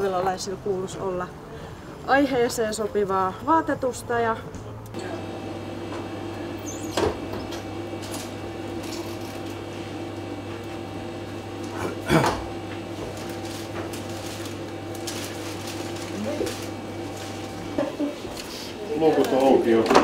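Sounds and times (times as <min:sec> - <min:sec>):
electrical hum: 0:04.9 - 0:20.0.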